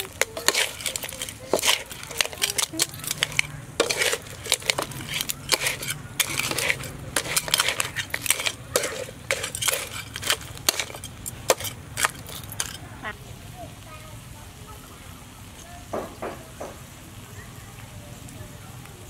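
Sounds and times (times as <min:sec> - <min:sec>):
crab shells rattling in a pan: 0:00.0 - 0:12.9
spatula scraping a metal wok: 0:00.0 - 0:12.9.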